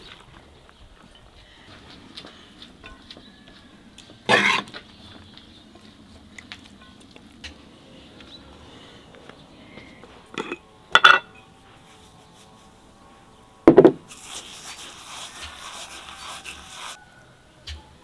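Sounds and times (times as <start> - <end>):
kitchenware scraping: 10.3 - 11.4
kitchenware knocking and clinking: 10.4 - 11.3.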